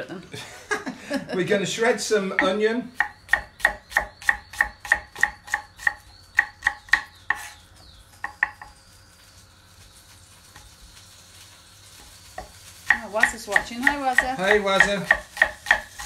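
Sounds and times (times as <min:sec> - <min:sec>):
knife slicing onion on board: 0:02.4 - 0:07.6, 0:12.4 - 0:16.0.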